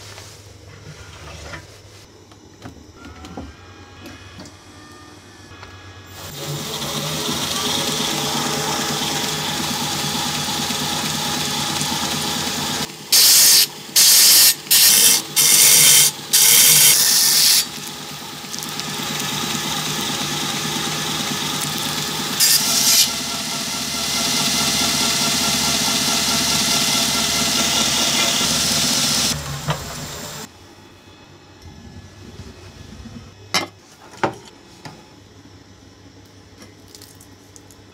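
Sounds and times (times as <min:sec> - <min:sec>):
belt grinder running: 0:06.1 - 0:29.4
blade grinding on belt: 0:13.2 - 0:17.9, 0:21.5 - 0:23.3.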